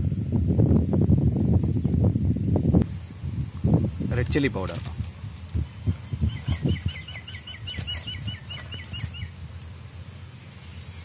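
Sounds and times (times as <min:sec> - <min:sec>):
bird chirping: 0:05.8 - 0:09.4.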